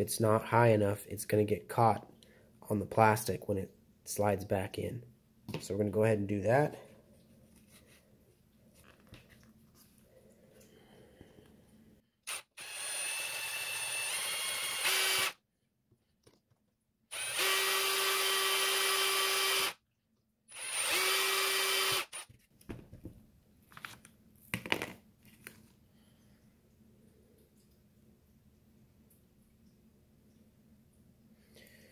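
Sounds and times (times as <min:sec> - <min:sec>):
cordless drill whining: 0:12.2 - 0:15.4, 0:17.1 - 0:19.8, 0:20.5 - 0:22.3.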